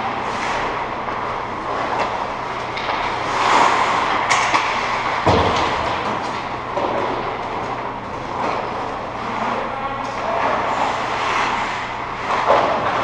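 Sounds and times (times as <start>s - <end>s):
skates scraping on ice: 0.2s - 7.6s, 8.2s - 13.0s
hockey stick and puck clacks: 0.4s - 9.0s, 10.1s - 13.0s.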